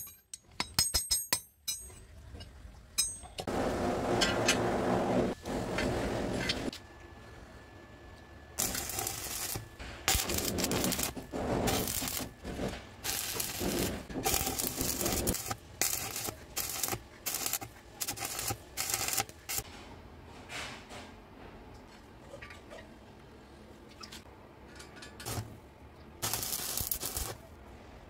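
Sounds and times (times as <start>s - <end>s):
welding arc crackling and hissing: 8.6s - 19.6s, 25.2s - 25.6s, 26.2s - 27.4s.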